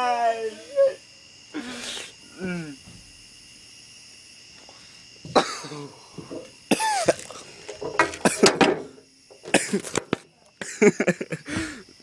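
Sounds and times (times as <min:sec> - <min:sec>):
person coughing: 0:05.3 - 0:06.0, 0:06.7 - 0:07.4, 0:09.5 - 0:09.9.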